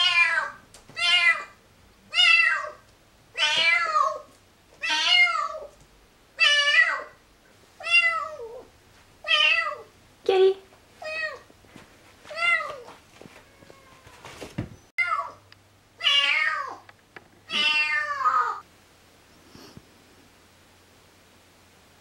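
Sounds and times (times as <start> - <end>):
cat meowing loudly: 0.0 - 2.8, 3.4 - 5.7, 12.3 - 14.4, 16.0 - 16.8, 17.5 - 18.6.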